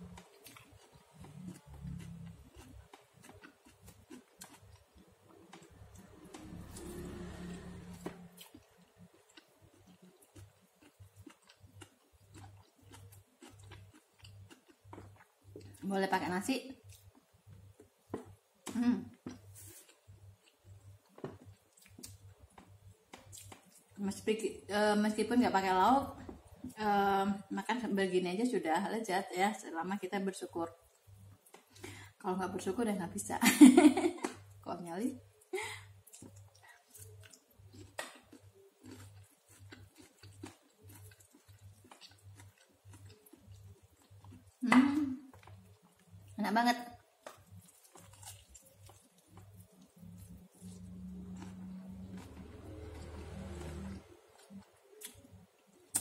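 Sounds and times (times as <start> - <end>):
wet chewing: 0.0 - 7.5, 8.2 - 15.9, 36.0 - 44.6, 47.0 - 56.0.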